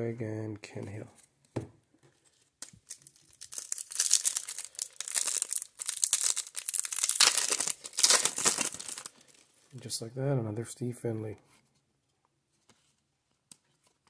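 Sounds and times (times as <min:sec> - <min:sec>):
foil wrapper crinkling and tearing: 0:02.6 - 0:09.5.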